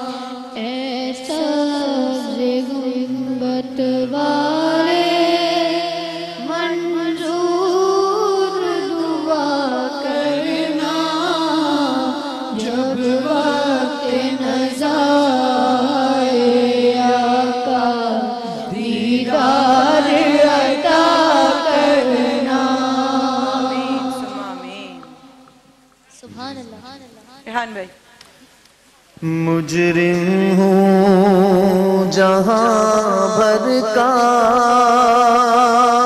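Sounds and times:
person singing: 0.0s - 25.1s.

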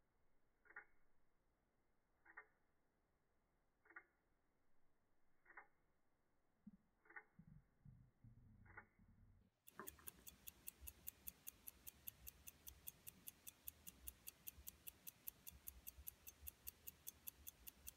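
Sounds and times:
watch ticking: 0.6s - 0.9s, 2.2s - 2.5s, 3.8s - 4.1s, 5.4s - 5.7s, 6.6s - 9.0s, 9.7s - 17.9s
faint muffled clicks: 9.7s - 14.2s.

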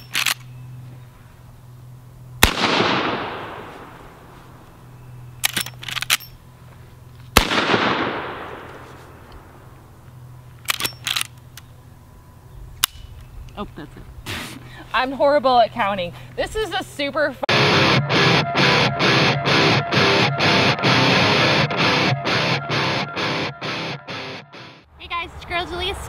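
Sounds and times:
rifle lever metallic clicks: 0.0s - 0.5s, 5.4s - 6.4s, 10.5s - 11.7s, 12.8s - 13.3s
rifle shots echoing: 2.4s - 4.3s, 7.4s - 9.7s.

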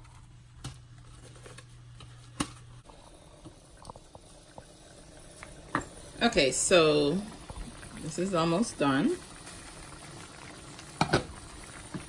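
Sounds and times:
food simmering in a frying pan: 2.8s - 12.0s.

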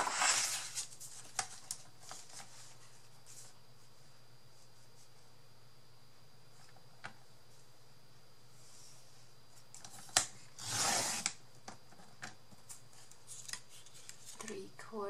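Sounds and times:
paper rustling: 0.0s - 3.6s, 12.0s - 14.6s.

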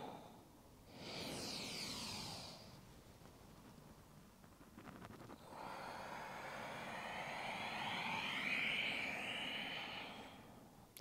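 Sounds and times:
long breathy exhale: 0.0s - 2.8s, 5.4s - 10.8s.

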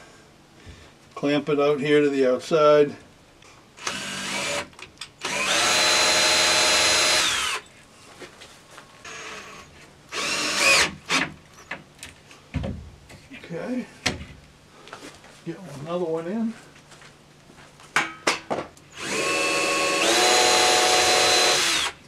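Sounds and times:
cordless drill driving screw: 3.8s - 7.6s, 9.1s - 11.3s, 18.9s - 22.0s.

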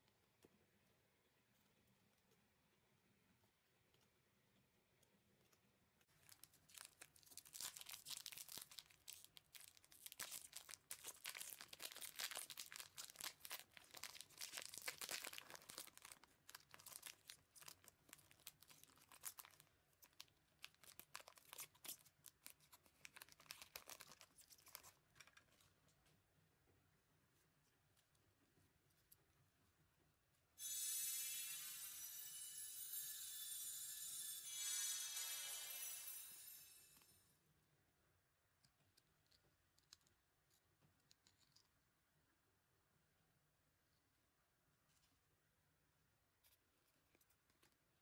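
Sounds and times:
plastic wrapper tearing and crinkling: 6.1s - 25.3s.

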